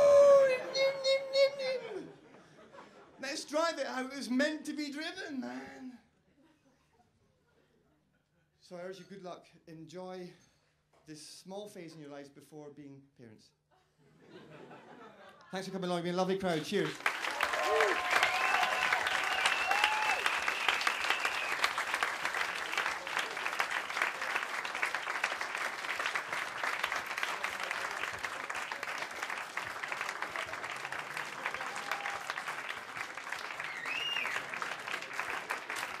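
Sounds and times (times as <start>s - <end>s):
audience applauding: 16.4s - 36.0s.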